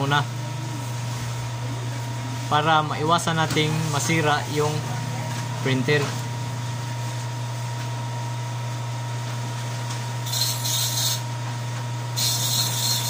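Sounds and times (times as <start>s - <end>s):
printer humming: 0.0s - 13.0s
thin constant whine: 10.2s - 11.4s, 12.2s - 13.0s.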